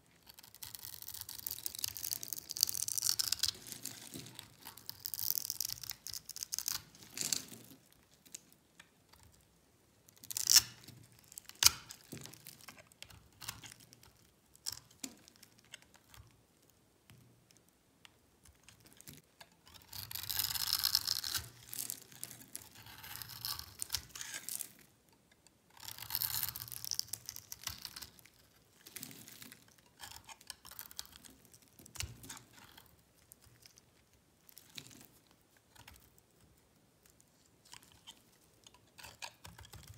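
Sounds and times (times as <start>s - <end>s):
knife scraping dry soap: 0.2s - 7.9s, 19.4s - 25.0s, 25.7s - 36.2s, 37.7s - 39.9s.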